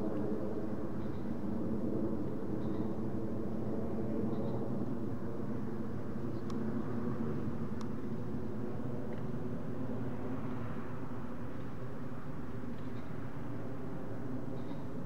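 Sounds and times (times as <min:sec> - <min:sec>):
jet airliner rumble: 0:00.0 - 0:15.0.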